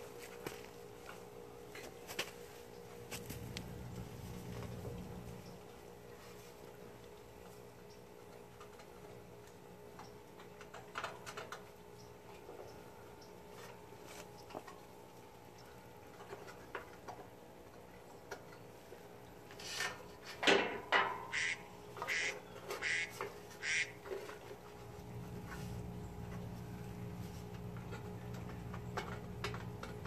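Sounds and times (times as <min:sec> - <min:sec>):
harsh repeated animal calls: 0:21.3 - 0:24.0.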